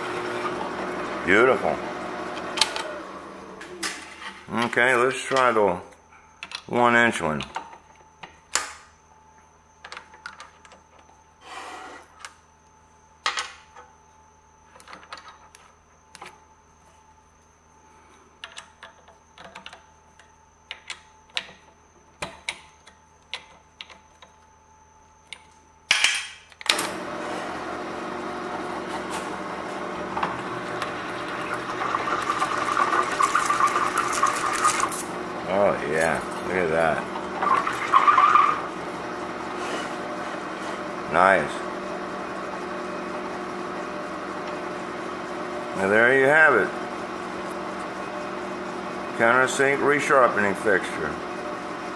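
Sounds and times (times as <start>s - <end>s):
drill press running: 0.0s - 4.4s, 26.7s - 51.9s.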